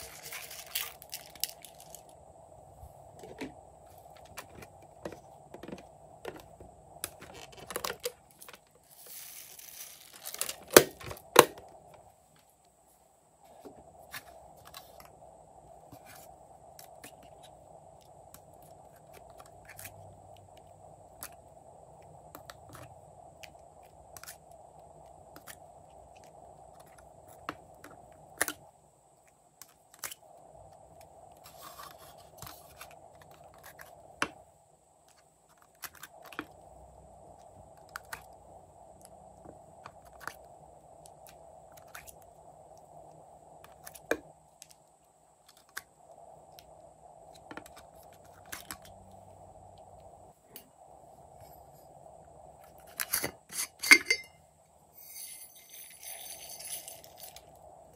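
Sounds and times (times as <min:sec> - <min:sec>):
faint steady hum: 0:00.0 - 0:57.9.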